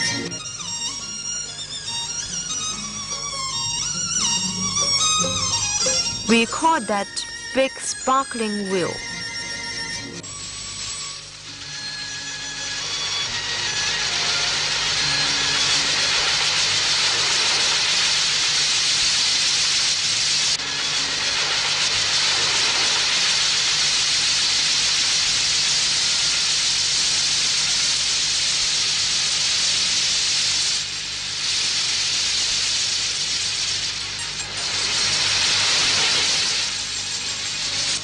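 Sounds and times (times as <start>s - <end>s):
firework hissing: 9.6s - 38.0s.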